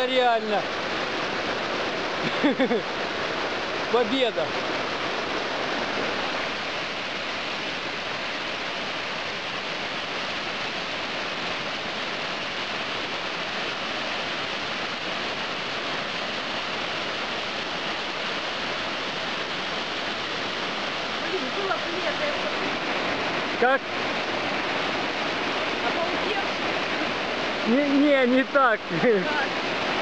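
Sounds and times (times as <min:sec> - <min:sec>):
waterfall rushing onto rocks: 0:00.0 - 0:30.0.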